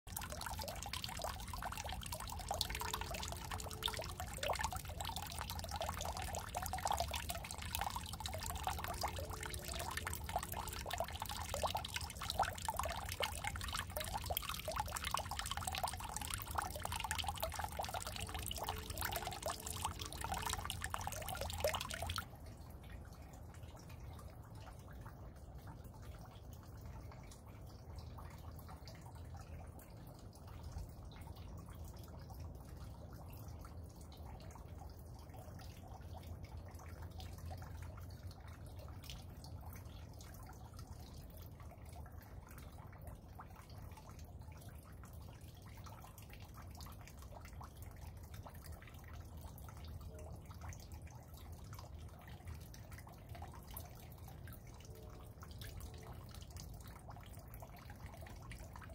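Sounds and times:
raindrops falling into puddle: 0.1s - 22.2s.

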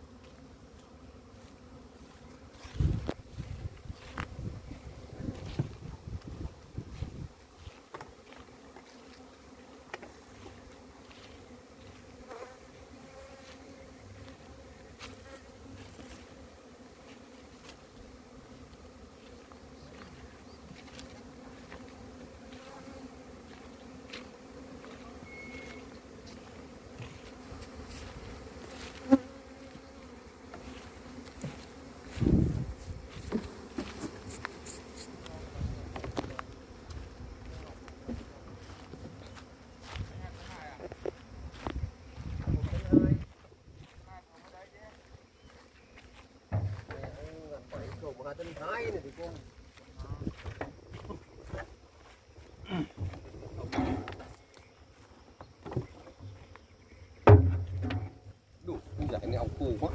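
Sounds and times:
honeybees buzzing: 0.0s - 59.9s
dull thumps: 57.2s - 58.3s
sharp knock: 57.3s - 58.2s.

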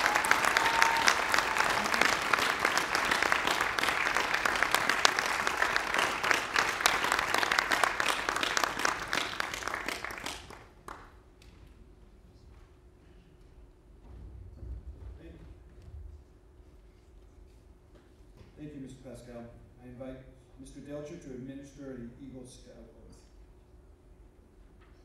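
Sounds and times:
audience applauding: 0.0s - 11.1s.

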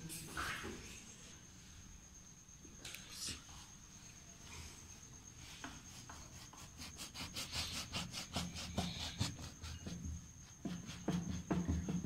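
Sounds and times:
bread knife sawing through cake: 6.3s - 9.8s.

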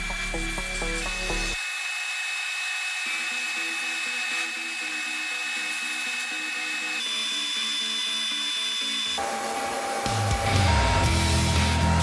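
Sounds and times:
background music: 0.0s - 1.6s, 8.6s - 12.0s.

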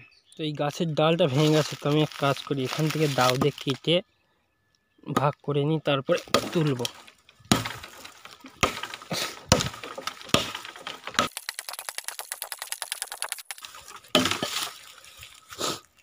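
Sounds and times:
knife chopping branch: 6.2s - 11.7s, 14.1s - 14.8s.

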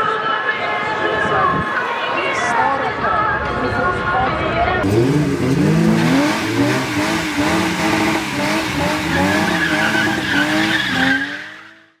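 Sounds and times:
car engine revving: 4.8s - 12.0s
tyres squealing: 8.8s - 11.8s.

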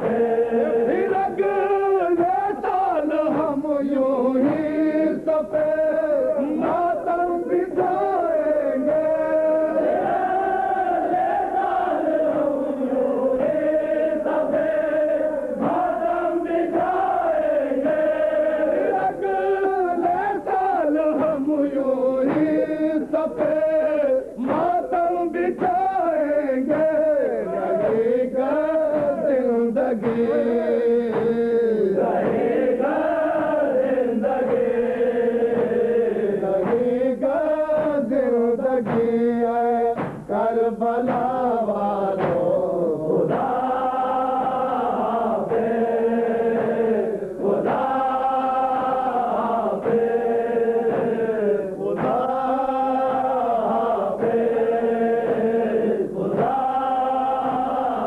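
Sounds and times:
men chanting a lament: 0.0s - 58.0s
sharp slaps: 24.4s - 25.9s, 30.0s - 31.5s, 34.4s - 36.0s, 36.6s - 38.2s, 38.8s - 40.4s, 41.0s - 41.4s, 42.1s - 42.6s, 50.8s - 51.3s, 51.9s - 58.0s.

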